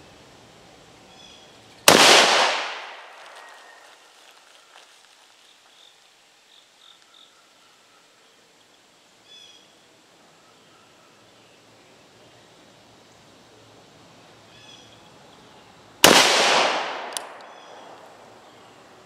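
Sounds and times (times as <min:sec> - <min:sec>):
rifle shot: 0:01.9 - 0:03.2, 0:16.0 - 0:17.8
birds chirping faintly: 0:17.3 - 0:19.0.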